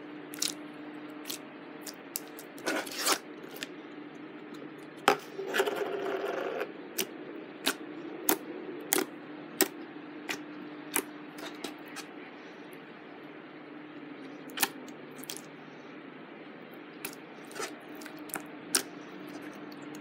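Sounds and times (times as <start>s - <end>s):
faint steady hum: 0.0s - 20.0s
slime crackling: 0.3s - 0.6s.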